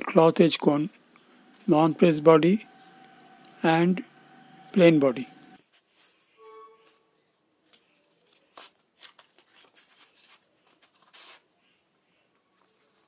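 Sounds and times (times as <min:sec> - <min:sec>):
paper rustling: 0:05.6 - 0:07.0, 0:07.6 - 0:13.0.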